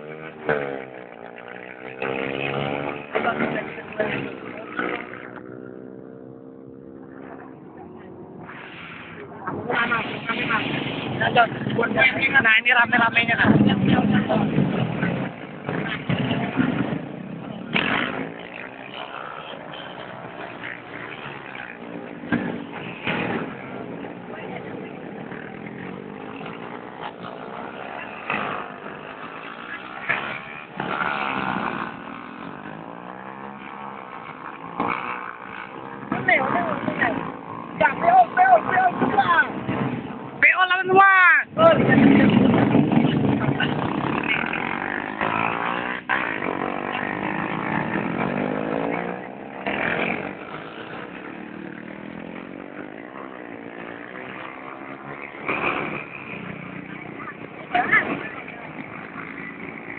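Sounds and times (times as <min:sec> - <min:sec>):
small motorcycles revving past: 0:00.0 - 0:40.4, 0:41.7 - 0:59.9.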